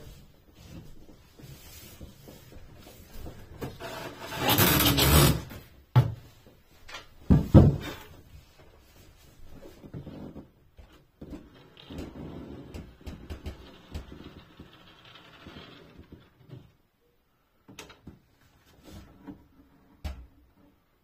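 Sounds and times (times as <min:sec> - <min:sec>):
hands rustling and scraping board: 0:00.0 - 0:05.5, 0:18.1 - 0:20.9.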